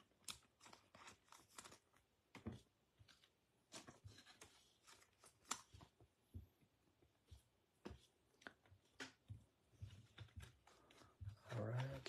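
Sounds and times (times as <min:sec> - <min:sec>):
trading cards rustling and tapping: 0:07.2 - 0:12.0.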